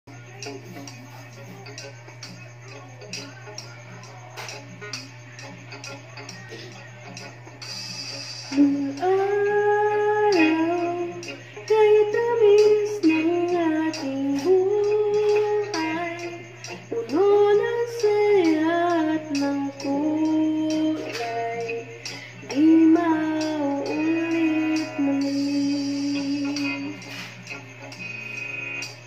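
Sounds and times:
karaoke backing track: 0.1 - 29.0
woman singing into a microphone: 8.5 - 27.0.

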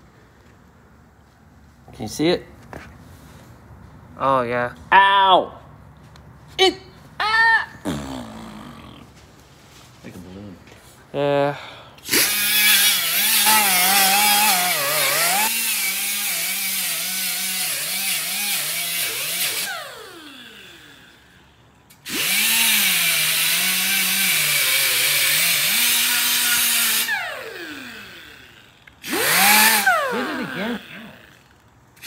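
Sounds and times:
die grinder whining on metal: 12.0 - 32.0.

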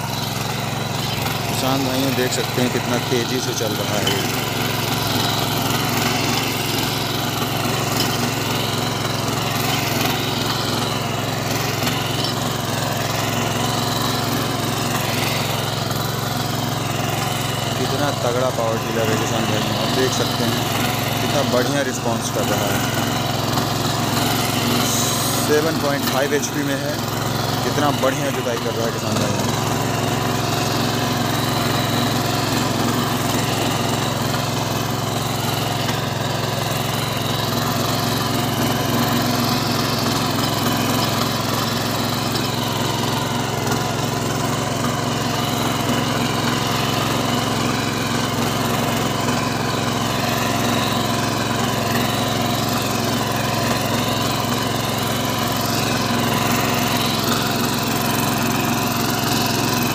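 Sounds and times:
small petrol engine running: 0.0 - 59.9.

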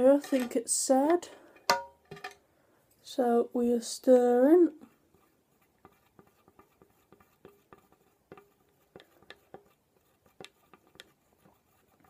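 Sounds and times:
stick tapping plastic cup: 0.2 - 2.4, 5.8 - 12.0.

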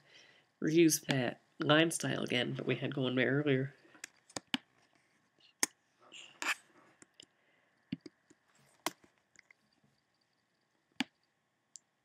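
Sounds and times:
soft breathy sound: 0.0 - 0.6, 6.0 - 7.9
computer mouse clicking: 7.9 - 8.4.

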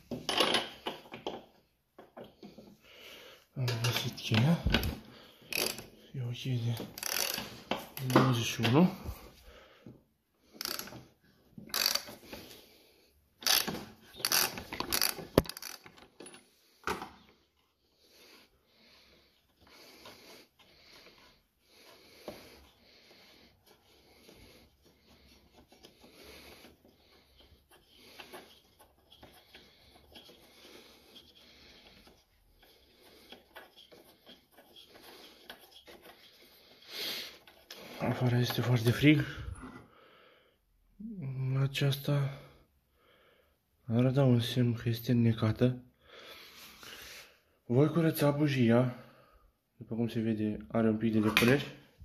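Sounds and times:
wrench metal scraping and clicking: 5.5 - 5.9, 7.0 - 8.1, 10.6 - 12.5, 13.4 - 16.4.

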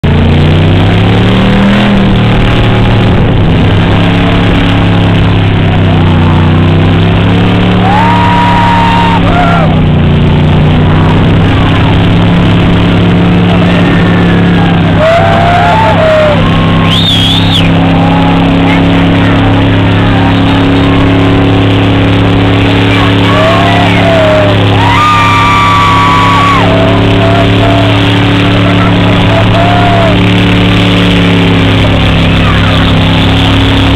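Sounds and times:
car engine revving: 0.0 - 33.9
crowd shouting: 5.7 - 10.0, 12.3 - 33.9
whistle: 16.6 - 17.8.

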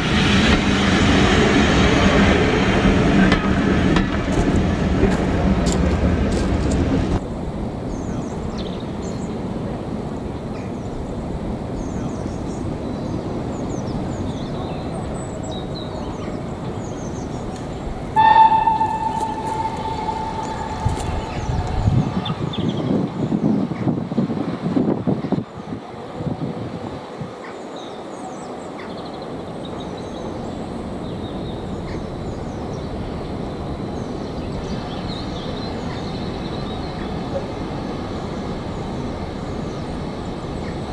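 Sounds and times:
steam locomotive rumbling: 0.0 - 25.2
loud noise: 18.2 - 22.5.

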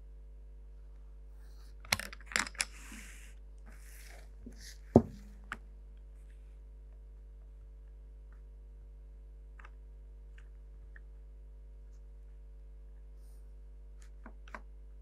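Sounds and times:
faint steady hum: 0.0 - 15.0
sharp knock: 4.9 - 5.4.

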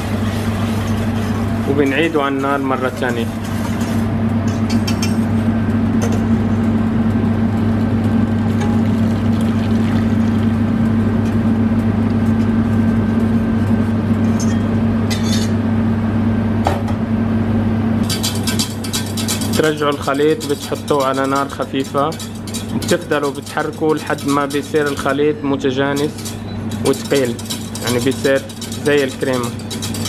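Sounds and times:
loud mechanical hum: 0.0 - 30.0
liquid pouring into saucepan: 8.5 - 10.8
wire whisk stirring: 18.0 - 30.0.

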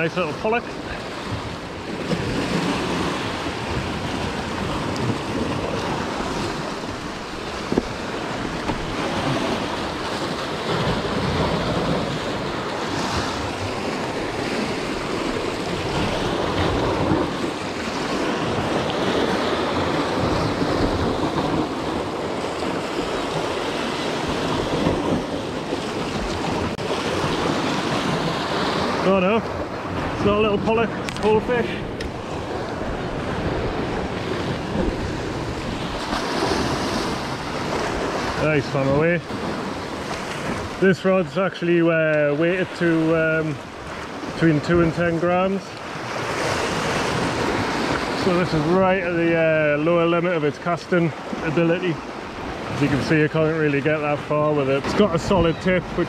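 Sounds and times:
wind buffeting microphone: 0.0 - 40.9
sea breaking against rocks: 0.0 - 50.1.

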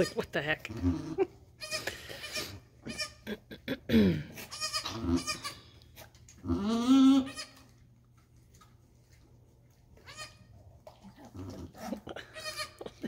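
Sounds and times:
goats bleating: 4.4 - 5.6, 6.5 - 7.7, 12.2 - 13.0.

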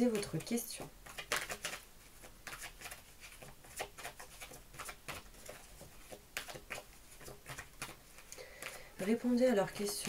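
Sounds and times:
cards being shuffled: 0.0 - 8.8.

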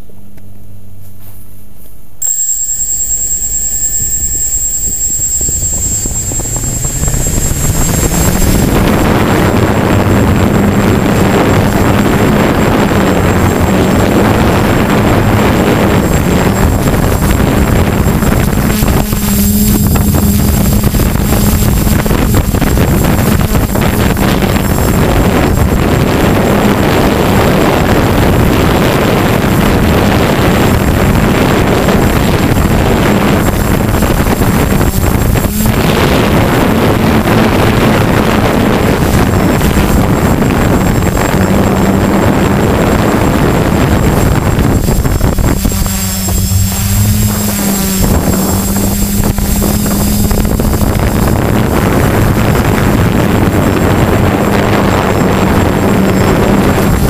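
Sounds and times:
drone motors humming: 2.2 - 57.0
wind buffeting microphone: 4.0 - 57.0.

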